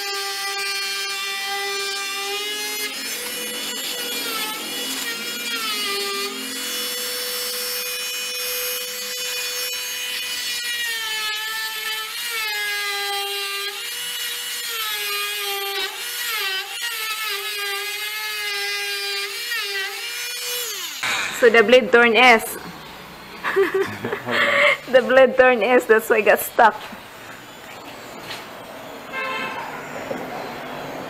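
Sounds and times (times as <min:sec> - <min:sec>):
oscillating tool cutting wood: 0:00.0 - 0:22.6.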